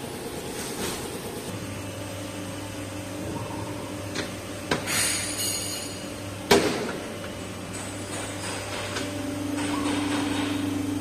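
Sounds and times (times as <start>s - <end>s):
machine hum: 0.0s - 11.0s
loud ringing metal clang: 4.9s - 6.1s.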